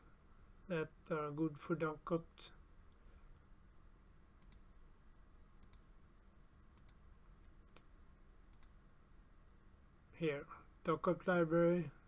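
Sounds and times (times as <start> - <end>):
faint computer mouse clicks: 4.4 - 4.7, 5.6 - 5.8, 6.7 - 7.9, 8.5 - 8.8.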